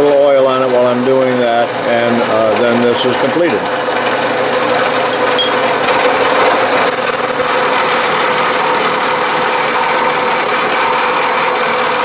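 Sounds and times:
milling machine cutting steel: 3.1s - 12.0s.

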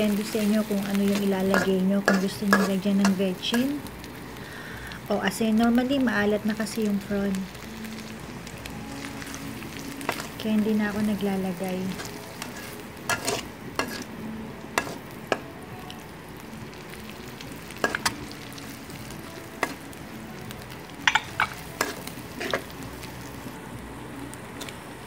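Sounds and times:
food sizzling in a wok: 0.0s - 25.0s
metal spatula scraping a pan: 0.4s - 3.2s, 11.9s - 14.1s, 14.8s - 15.0s.

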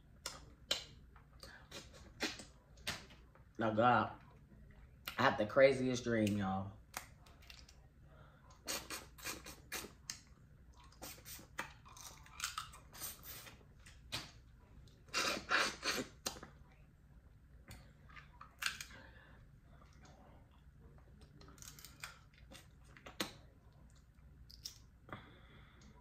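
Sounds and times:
chewing: 8.6s - 14.0s.

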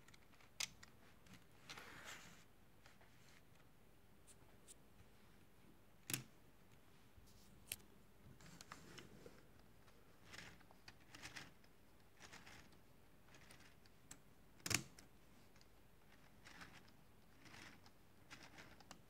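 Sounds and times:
plastic parts clicking and rustling: 8.9s - 19.0s.

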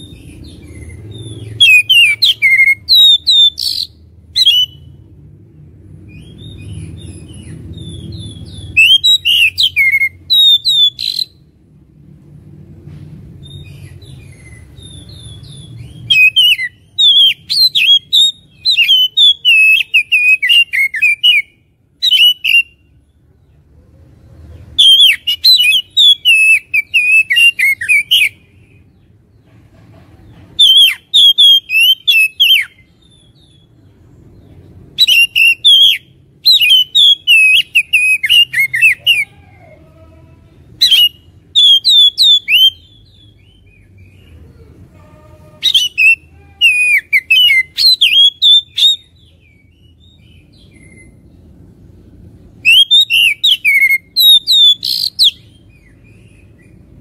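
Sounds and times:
bird singing whistles: 1.6s - 4.9s, 7.4s - 11.4s, 13.4s - 22.8s, 24.8s - 28.4s, 30.6s - 33.6s, 35.0s - 39.2s, 40.8s - 43.9s, 45.6s - 51.2s, 52.6s - 56.7s.

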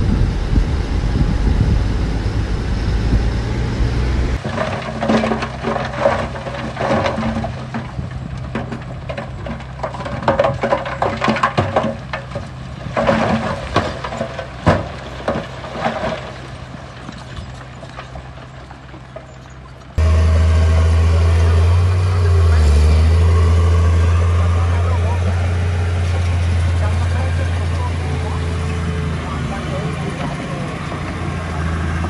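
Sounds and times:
deep engine rumble: 0.0s - 11.2s, 16.4s - 32.0s
diesel engine running low: 0.0s - 32.0s
metallic clanks and scraping: 4.4s - 16.4s.

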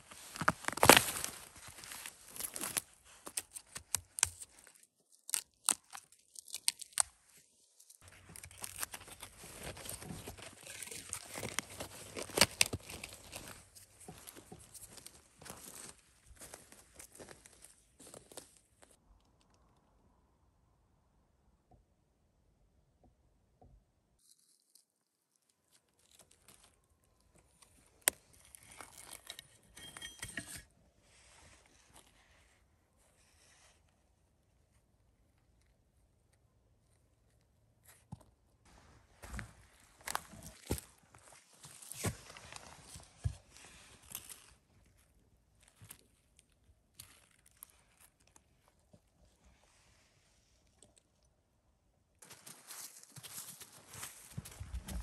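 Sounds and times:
footsteps crunching on dry leaves: 0.0s - 2.9s, 8.0s - 18.5s, 52.2s - 55.0s
dry leaves and twigs rustling: 0.0s - 19.0s, 24.2s - 29.7s, 38.1s - 48.7s, 52.2s - 55.0s
twig snapping: 0.4s - 7.2s, 8.3s - 13.6s.

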